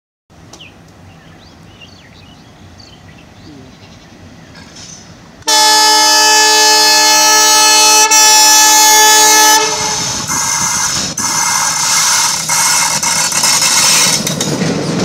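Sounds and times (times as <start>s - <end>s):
open-air ambience: 0.3s - 15.0s
birds chirping: 0.6s - 4.8s
train horn blast: 5.4s - 10.2s.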